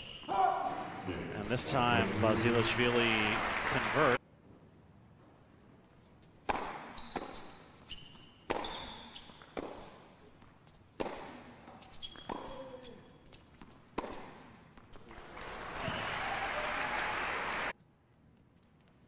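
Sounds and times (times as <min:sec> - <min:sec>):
sneakers squeaking on court: 0:00.0 - 0:00.9, 0:06.0 - 0:15.1
racket striking tennis ball: 0:06.4 - 0:10.2, 0:10.9 - 0:15.0
tennis ball bouncing: 0:06.4 - 0:15.0.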